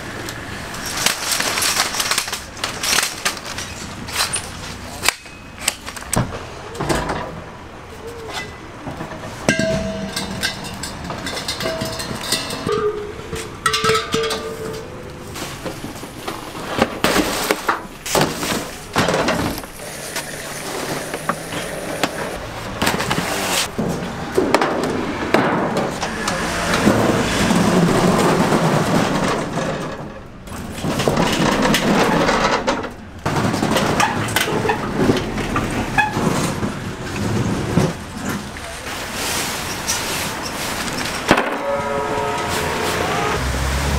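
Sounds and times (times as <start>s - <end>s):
equipment clattering and knocking: 8.8s - 19.8s, 22.0s - 38.6s
background voices: 25.9s - 30.2s.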